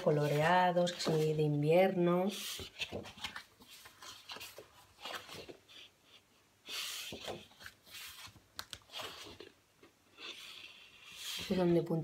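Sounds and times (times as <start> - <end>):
paper sheets rustling: 0.0 - 5.9, 6.7 - 9.5.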